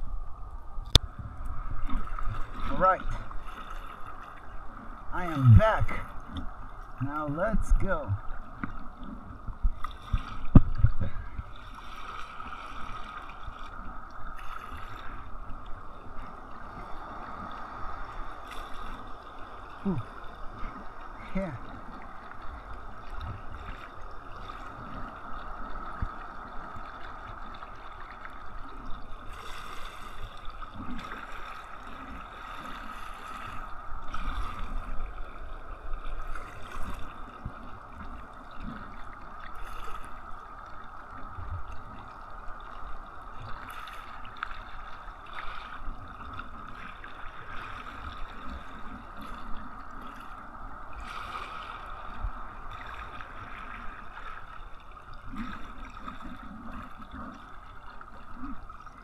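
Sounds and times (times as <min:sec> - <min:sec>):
water sloshing against hull: 0:00.0 - 0:59.0
steady hum: 0:05.1 - 0:06.2.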